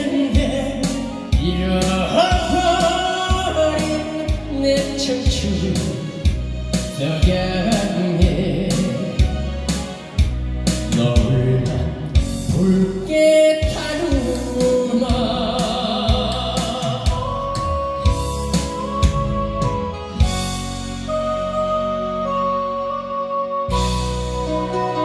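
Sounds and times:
man singing: 0.0 - 6.3, 6.9 - 9.3, 10.9 - 19.4
backing track with drum beat: 0.0 - 21.5.

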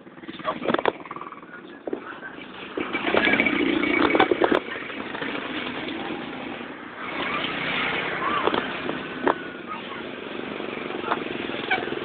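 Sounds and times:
motorcycle engines running: 0.0 - 12.0
sharp knocks and rattles: 0.1 - 2.0, 2.6 - 6.0
motorized tricycle passing: 2.4 - 12.0.

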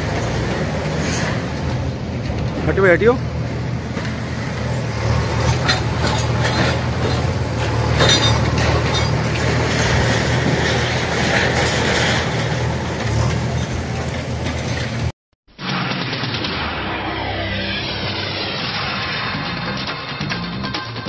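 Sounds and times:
knocks and clatter: 0.0 - 2.8, 3.4 - 16.8
heavy diesel machinery running: 0.0 - 20.4.

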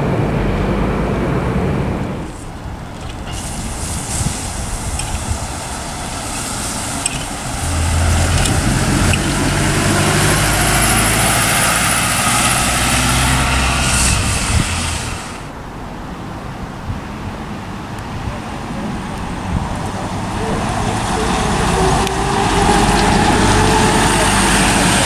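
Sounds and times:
bus passing close by: 0.0 - 25.0
road noise: 0.0 - 25.0.

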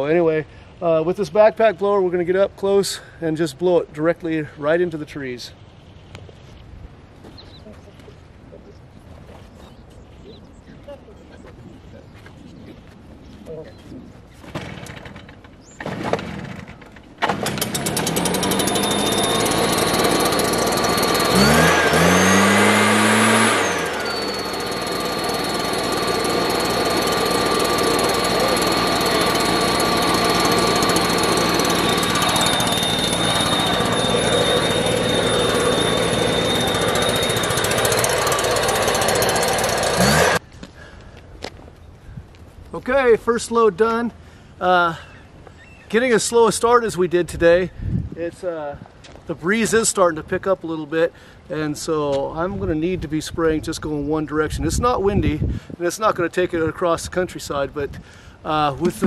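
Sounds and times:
mist blower engine running: 17.2 - 40.4, 58.7 - 59.0.

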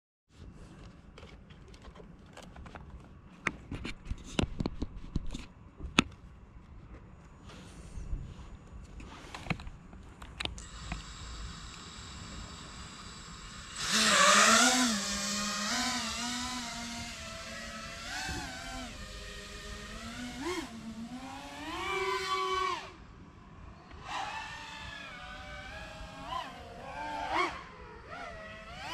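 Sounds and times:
quadcopter motors whining: 10.5 - 28.9.

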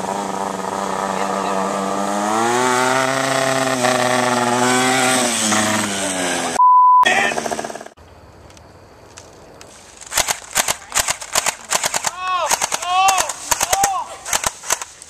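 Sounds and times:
vehicle engine passing: 0.0 - 6.6.

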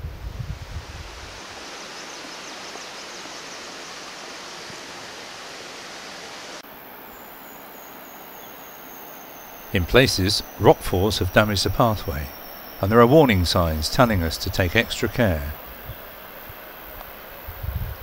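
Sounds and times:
faint high whine: 6.3 - 18.0.

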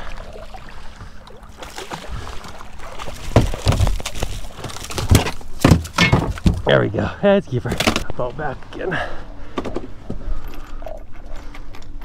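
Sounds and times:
fish thumping on boat deck: 3.2 - 6.7.

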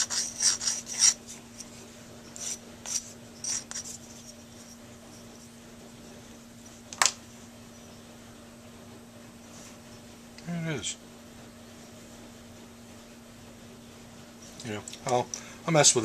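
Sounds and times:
sandpaper rubbing on metal: 0.0 - 1.3, 2.4 - 4.0.

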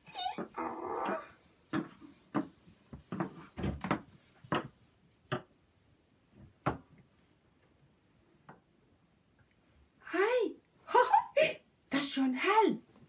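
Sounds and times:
knocks and thumps: 1.7 - 5.6, 6.4 - 6.9.

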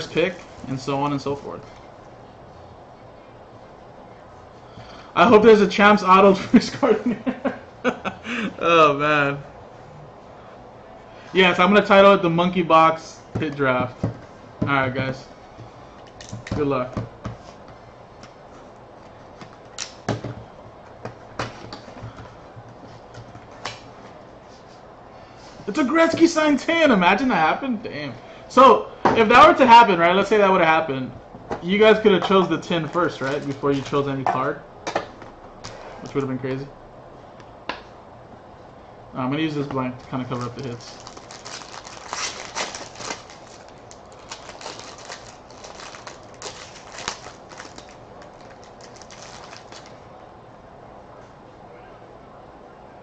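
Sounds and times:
foil wrapper crinkling: 40.0 - 50.0
foil wrapper tearing: 40.3 - 50.0.

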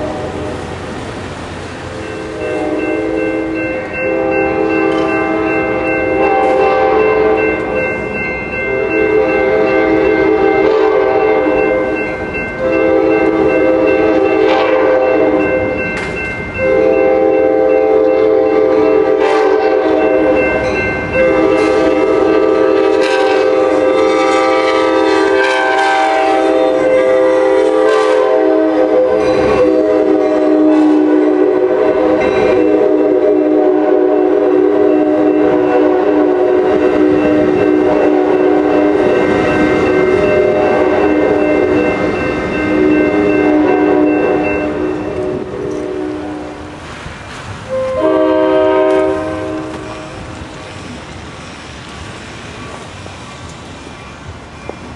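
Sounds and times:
train air horn blasts: 0.0 - 0.7, 2.0 - 7.8, 8.7 - 12.0, 12.6 - 15.8, 16.6 - 42.0, 42.6 - 46.8, 47.7 - 50.6.

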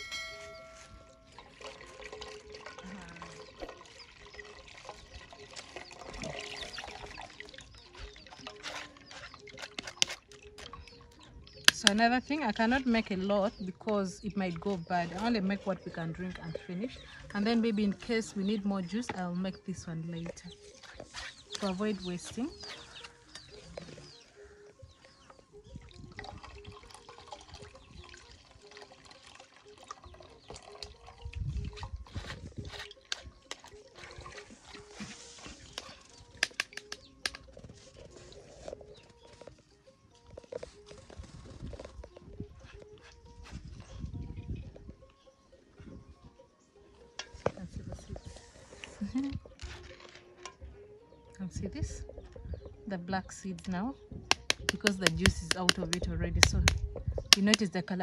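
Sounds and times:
water trickling into a metal pan: 0.9 - 12.6, 25.8 - 32.3
juice dripping from strainer: 1.2 - 11.8, 25.8 - 35.0.

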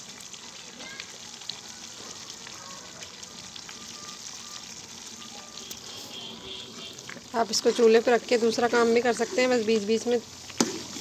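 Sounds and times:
small crackling pops: 0.0 - 6.0, 9.6 - 11.0
cream frothing and sizzling: 0.0 - 11.0.

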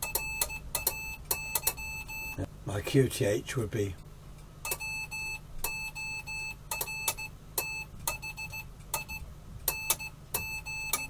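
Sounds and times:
morse code beeps: 0.0 - 2.4, 4.6 - 11.0.

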